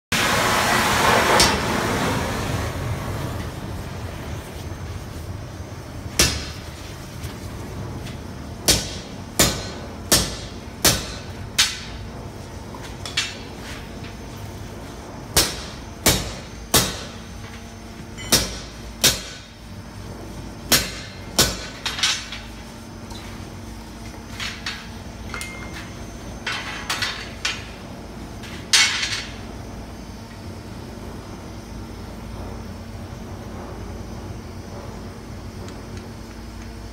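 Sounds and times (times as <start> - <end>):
hammer striking punch on hot metal: 6.1 - 6.7, 8.6 - 12.0, 15.3 - 17.2, 18.2 - 19.6, 20.7 - 22.5.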